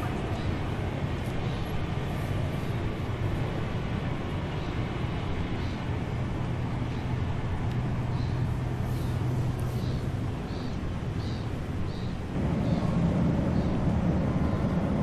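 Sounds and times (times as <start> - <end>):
low mechanical rumble: 0.0 - 15.0
low hum: 12.1 - 15.0.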